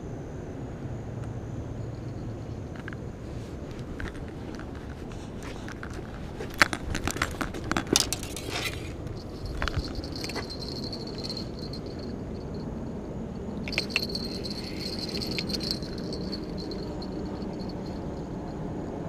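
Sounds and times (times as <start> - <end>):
light metallic clinks: 3.7 - 18.6.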